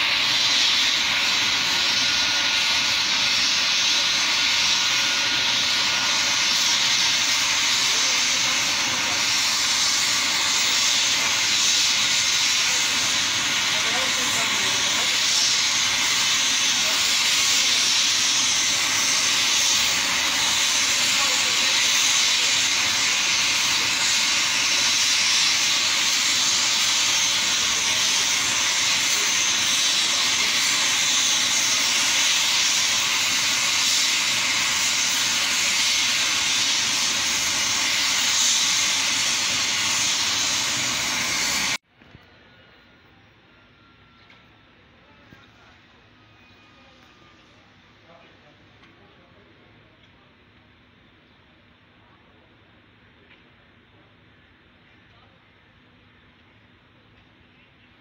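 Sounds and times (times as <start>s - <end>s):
helicopter turbine engines running: 0.0s - 42.1s.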